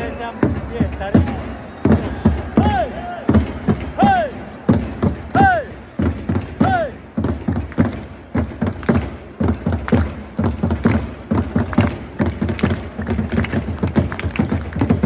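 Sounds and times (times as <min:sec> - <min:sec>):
crowd voices: 0:00.0 - 0:07.3
drums beating in rhythm: 0:00.0 - 0:15.0.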